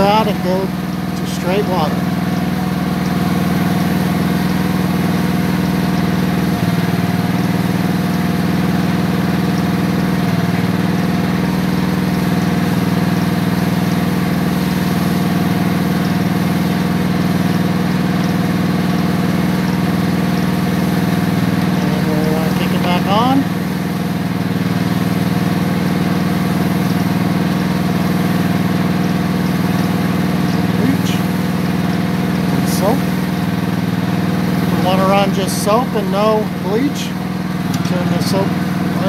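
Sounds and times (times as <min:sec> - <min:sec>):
gas engine driving a pump: 0:00.0 - 0:39.0.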